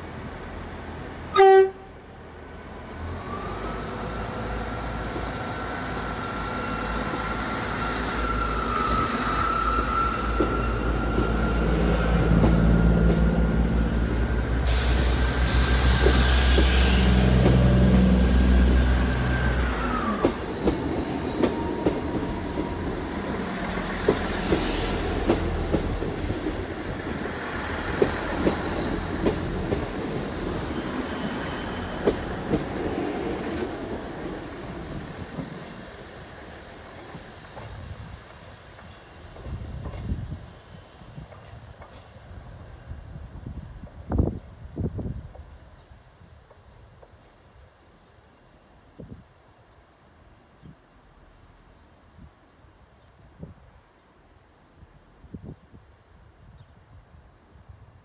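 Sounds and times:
train horn blast: 0:01.3 - 0:02.0.

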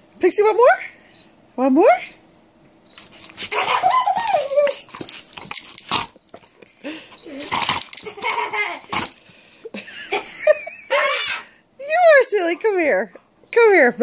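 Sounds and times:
dog growling and snapping: 0:03.0 - 0:06.5, 0:07.3 - 0:08.3
dog whining: 0:03.3 - 0:05.4, 0:06.8 - 0:09.2.

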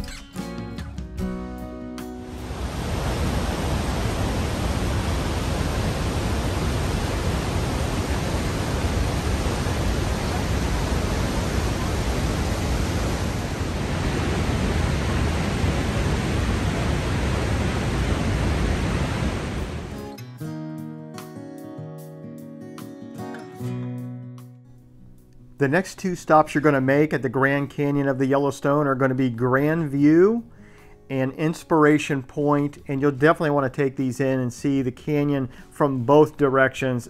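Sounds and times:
waterfall rushing and rumbling: 0:02.2 - 0:20.0.

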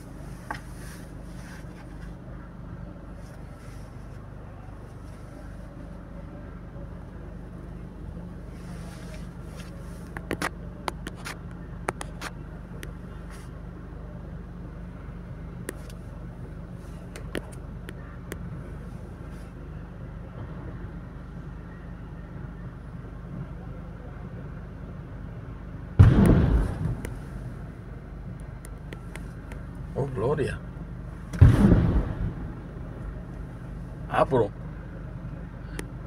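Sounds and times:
car interior rumble: 0:00.0 - 0:24.0, 0:25.8 - 0:36.0.

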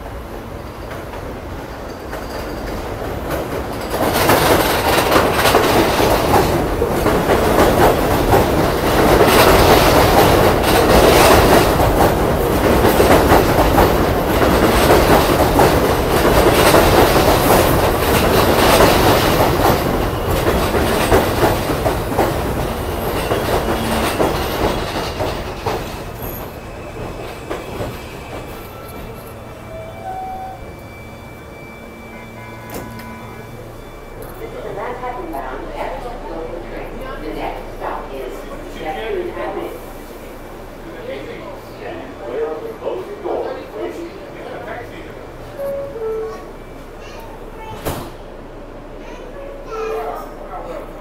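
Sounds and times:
train wheels clattering on rails: 0:00.6 - 0:29.4
train wheels squealing: 0:25.9 - 0:35.1.

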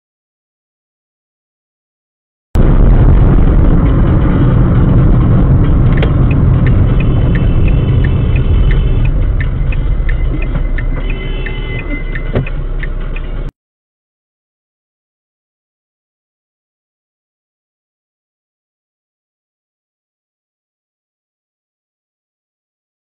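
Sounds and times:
car engine and road noise: 0:02.6 - 0:13.6
scattered clicks: 0:05.6 - 0:13.5.

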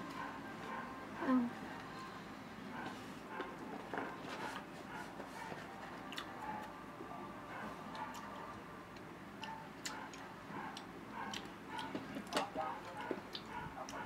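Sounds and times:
chewing crisp mango: 0:06.1 - 0:06.7, 0:07.9 - 0:14.0.

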